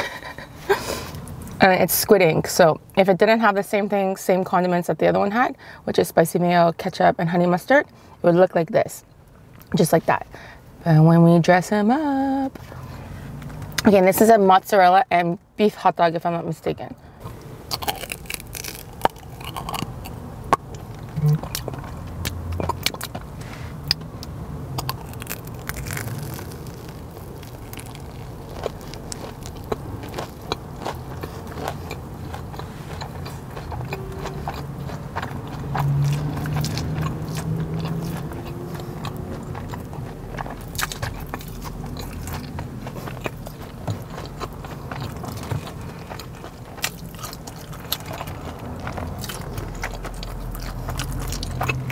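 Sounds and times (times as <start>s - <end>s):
crunching of crispy batter: 17.2s - 23.3s, 24.7s - 51.9s
person chewing: 17.2s - 51.9s.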